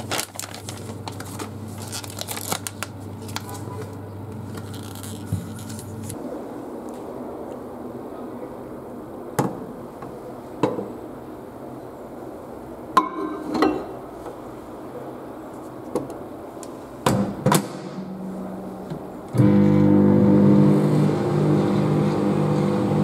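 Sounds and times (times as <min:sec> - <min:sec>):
microwave humming: 0:18.0 - 0:23.0.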